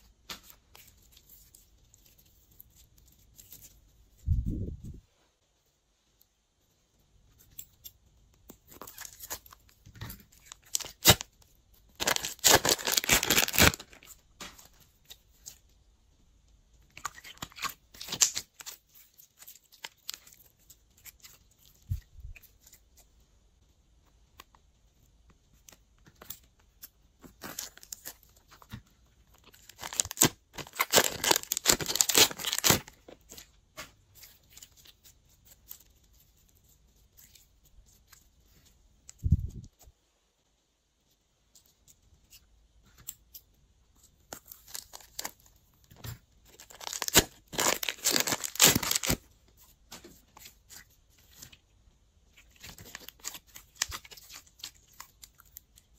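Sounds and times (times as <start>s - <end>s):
slime crackling and popping: 10.4s - 14.5s, 29.4s - 33.0s, 46.5s - 49.2s.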